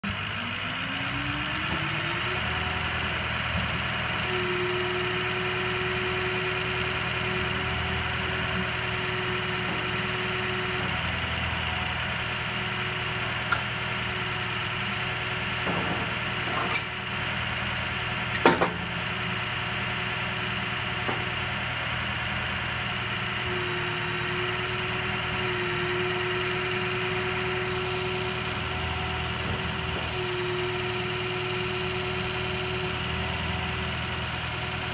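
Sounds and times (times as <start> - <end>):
hydraulic whine: 0.0 - 34.9
truck engine running: 0.0 - 34.9
sharp metal clanks: 16.6 - 17.2.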